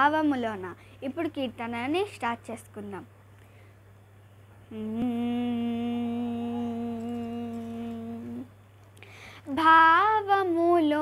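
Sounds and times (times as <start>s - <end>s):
girl singing: 4.7s - 8.6s, 9.4s - 11.0s
girl humming a steady note: 4.7s - 9.1s.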